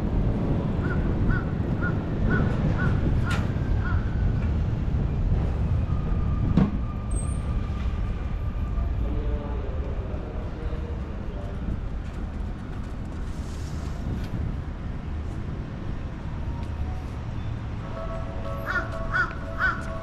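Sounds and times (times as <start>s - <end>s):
crow cawing: 18.7s - 19.8s.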